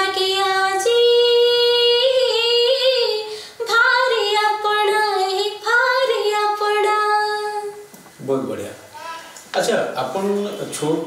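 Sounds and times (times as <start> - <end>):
woman singing unaccompanied: 0.0 - 7.9.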